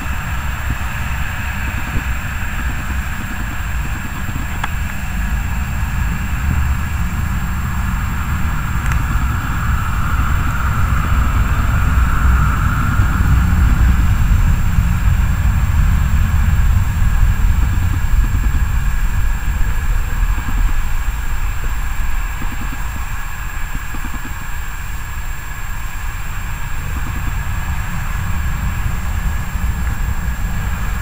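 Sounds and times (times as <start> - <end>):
jet engines taxiing: 0.0 - 31.0.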